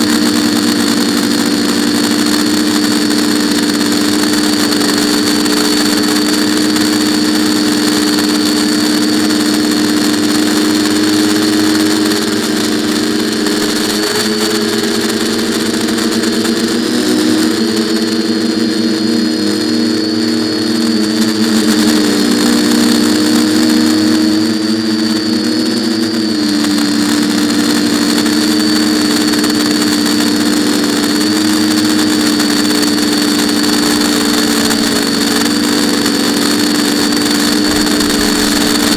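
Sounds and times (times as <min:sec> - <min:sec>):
quadcopter propellers whirring: 0:00.0 - 0:38.9.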